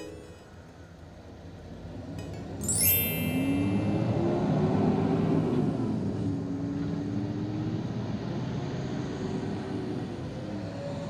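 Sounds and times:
heavy truck driving past: 3.0s - 11.0s.

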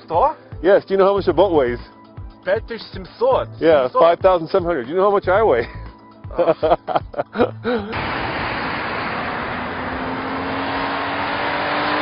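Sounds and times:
tyre and engine noise: 7.9s - 12.0s
faint rising engine note: 8.0s - 12.0s.

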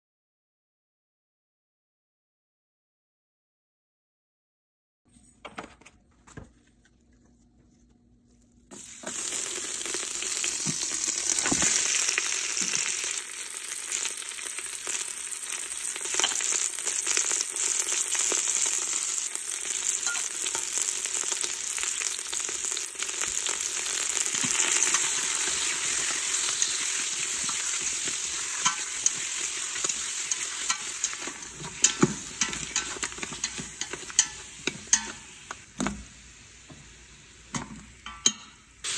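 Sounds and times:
food sizzling in hot oil: 8.7s - 38.9s
stirring clicks against pot: 28.6s - 36.0s.

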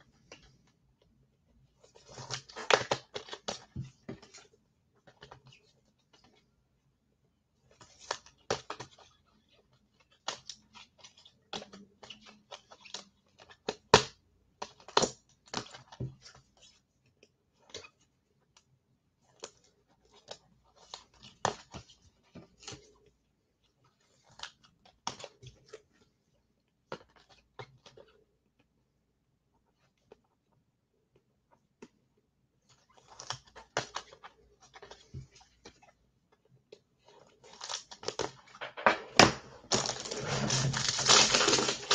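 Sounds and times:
crinkling rustles: 39.5s - 41.9s.

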